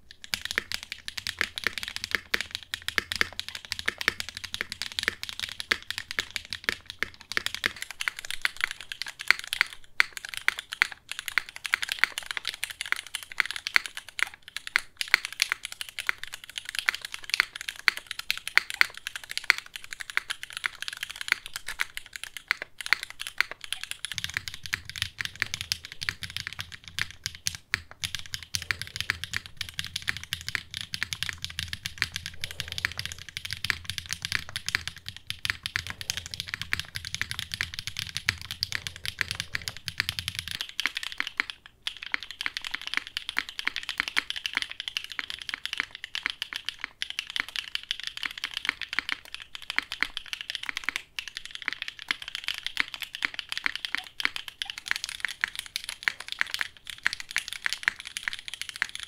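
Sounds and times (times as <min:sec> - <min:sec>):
fast mechanical keyboard typing: 0:00.0 - 0:59.0.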